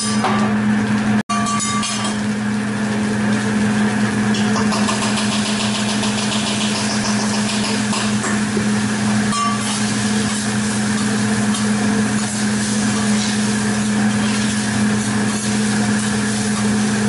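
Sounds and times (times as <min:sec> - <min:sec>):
rice sizzling on a griddle: 0:08.9 - 0:17.0.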